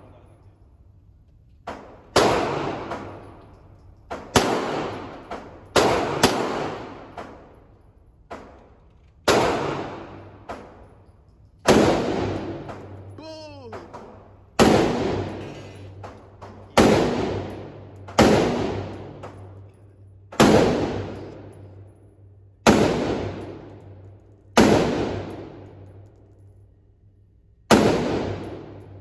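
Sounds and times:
pistol shots echoing: 0:01.8 - 0:03.3, 0:04.1 - 0:07.4, 0:09.3 - 0:10.7, 0:11.7 - 0:13.1, 0:13.8 - 0:19.5, 0:20.3 - 0:21.6, 0:22.6 - 0:23.9, 0:24.5 - 0:26.0, 0:27.7 - 0:29.0.

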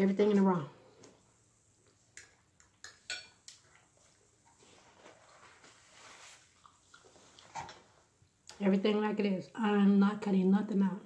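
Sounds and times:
fork clinking on a plate: 0:02.2 - 0:03.6.

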